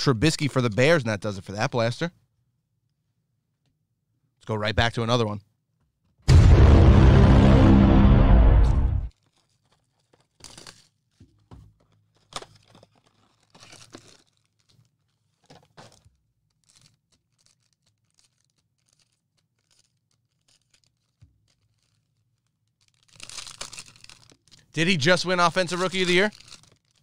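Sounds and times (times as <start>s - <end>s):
loud burst of music: 6.3s - 9.1s
packaging tearing and crinkling: 9.1s - 11.2s, 11.8s - 27.0s.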